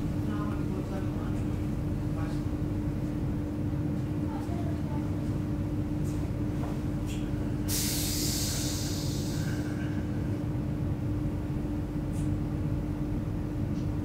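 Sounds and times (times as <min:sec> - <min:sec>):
metro train hum: 0:00.0 - 0:14.0
hiss of air: 0:07.6 - 0:10.0.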